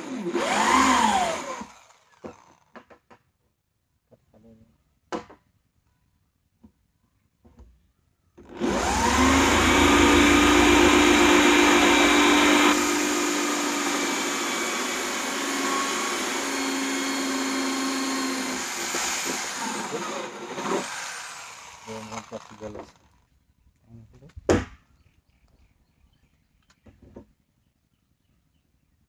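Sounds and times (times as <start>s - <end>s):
electric drill boring plastic: 0.0s - 2.9s, 8.4s - 23.2s.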